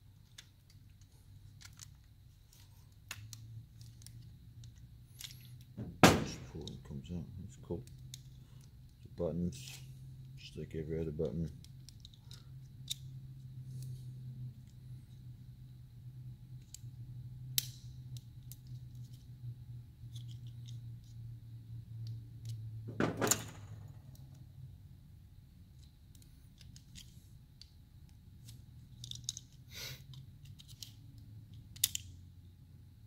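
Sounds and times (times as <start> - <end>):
steady low hum: 0.0 - 33.0
plastic parts clicking and rattling: 0.2 - 6.9, 11.0 - 13.1, 20.1 - 21.2, 22.0 - 24.4, 25.7 - 32.2
clattering knock: 5.8 - 6.4, 22.9 - 23.8.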